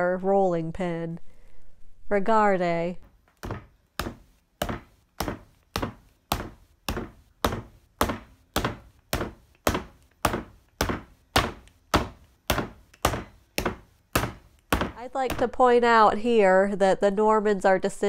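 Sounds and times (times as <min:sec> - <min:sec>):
rolling pin thudding on dough: 0:03.0 - 0:15.6.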